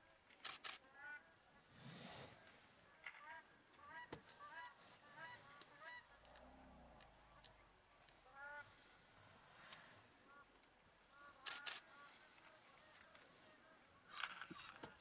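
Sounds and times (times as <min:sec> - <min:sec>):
low elephant rumble: 0:06.2 - 0:07.3.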